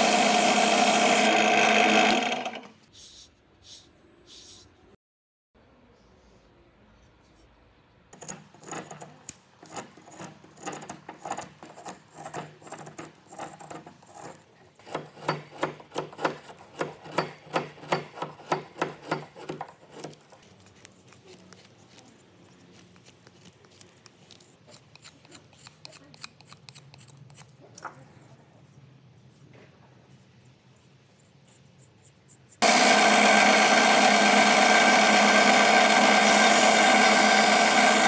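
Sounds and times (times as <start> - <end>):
knife scraping wood: 8.2 - 27.7.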